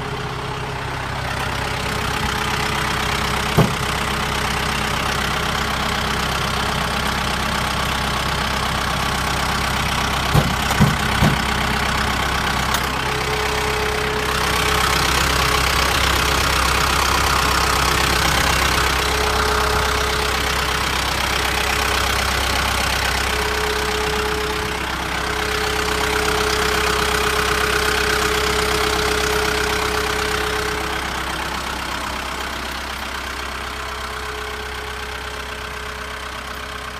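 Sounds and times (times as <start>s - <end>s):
tractor diesel engine idling: 0.0s - 36.9s
short knocks: 10.3s - 11.5s.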